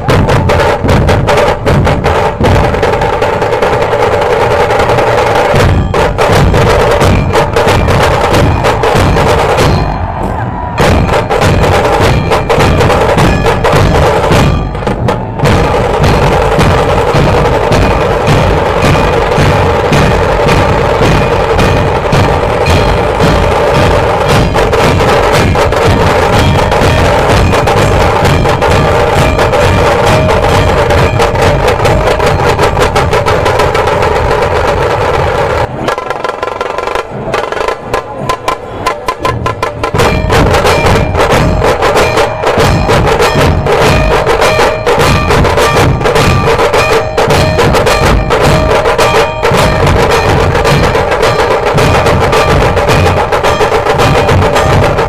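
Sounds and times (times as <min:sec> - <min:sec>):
deep drum strokes: 0:00.0 - 0:55.0
sharp stick drumming: 0:00.0 - 0:55.0.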